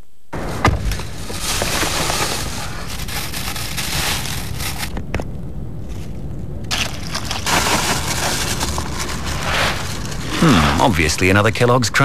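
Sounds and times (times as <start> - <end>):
plastic bag rustling: 0.4 - 5.1, 5.8 - 11.1.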